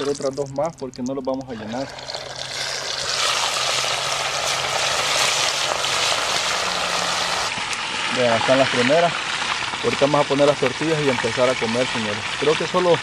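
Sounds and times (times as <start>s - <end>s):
fish sizzling in hot oil: 1.6s - 13.0s.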